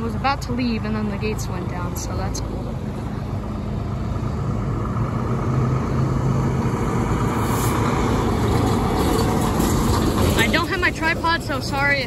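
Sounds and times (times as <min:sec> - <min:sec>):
truck diesel engine driving past: 0:00.0 - 0:12.0.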